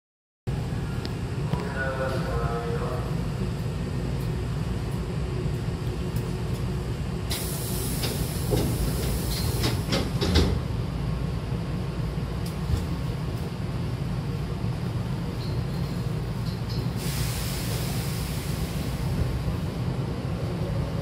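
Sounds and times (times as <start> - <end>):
low hum of stopped train: 0.5 - 21.0
hiss of air: 7.3 - 10.0, 16.9 - 19.4
train doors knocking and thudding: 7.3 - 10.8.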